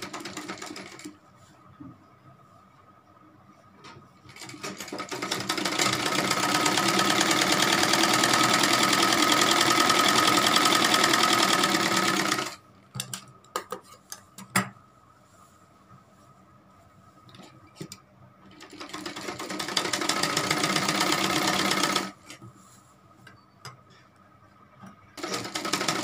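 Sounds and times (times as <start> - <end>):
sewing machine stitching: 4.3 - 12.6, 18.6 - 22.2, 25.2 - 26.0.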